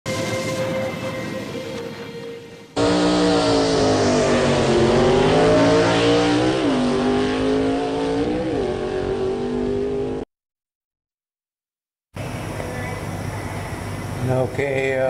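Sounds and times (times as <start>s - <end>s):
high-revving car engine: 2.8s - 10.2s.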